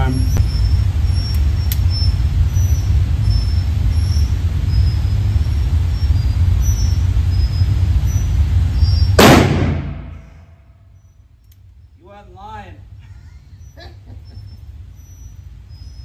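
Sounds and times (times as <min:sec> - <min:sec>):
low rumble: 0:00.0 - 0:10.6
revolver shot with echo: 0:09.2 - 0:10.5.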